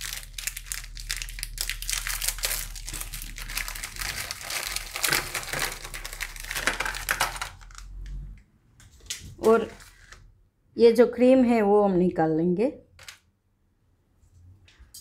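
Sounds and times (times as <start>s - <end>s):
plastic wrapper crinkling: 0.0s - 8.3s.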